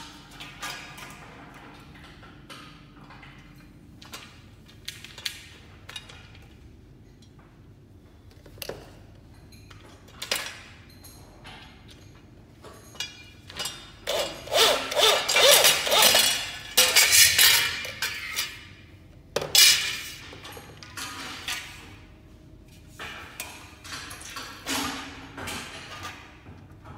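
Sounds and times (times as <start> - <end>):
metal parts clinking: 8.5 - 18.7
electric drill running: 14.1 - 16.3.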